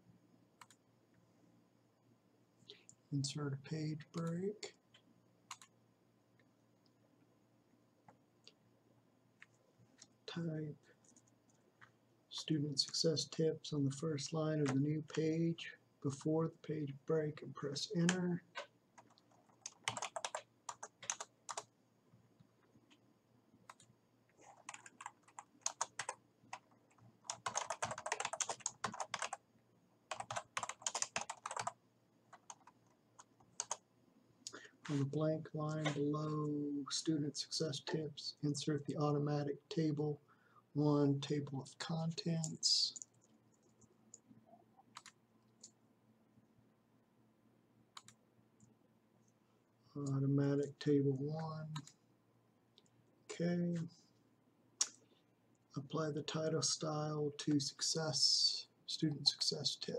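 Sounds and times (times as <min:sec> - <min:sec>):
typing on computer keyboard: 0:05.5 - 0:05.7, 0:18.0 - 0:21.7, 0:23.7 - 0:29.4, 0:30.1 - 0:33.8, 0:44.9 - 0:45.7.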